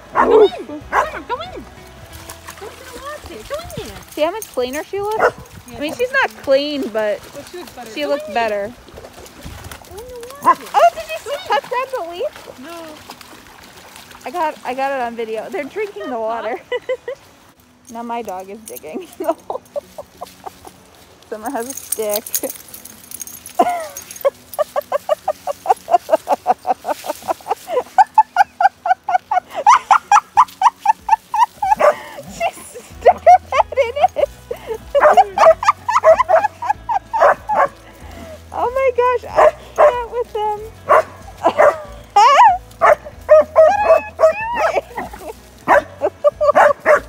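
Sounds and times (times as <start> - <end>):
dog yipping: 0.2 - 1.2, 5.2 - 5.5, 29.6 - 32.1, 35.0 - 37.8, 39.3 - 40.0, 40.9 - 47.0.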